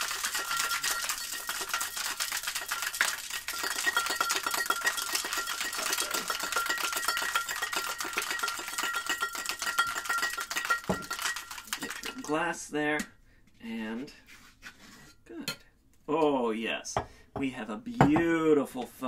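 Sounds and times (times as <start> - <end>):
ice rattling in cocktail shaker: 0.0 - 12.4.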